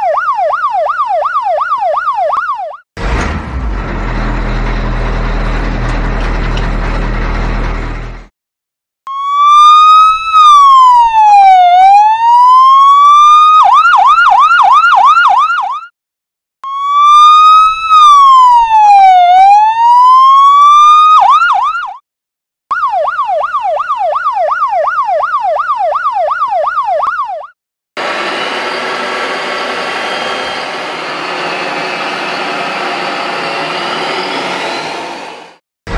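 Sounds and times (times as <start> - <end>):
toy truck electronic siren: 9.1 - 15.9, 16.7 - 22.0, 22.7 - 35.0.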